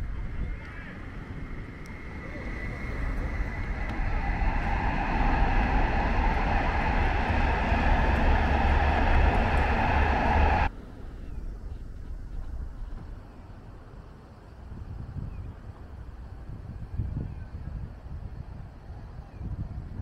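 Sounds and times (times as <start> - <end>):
large vehicle passing: 0.9 - 10.7.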